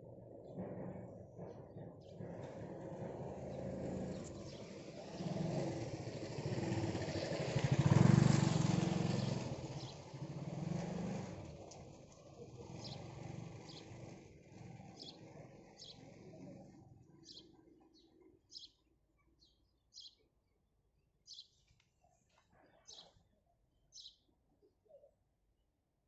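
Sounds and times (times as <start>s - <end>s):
vehicle engine passing by: 0.1s - 17.4s.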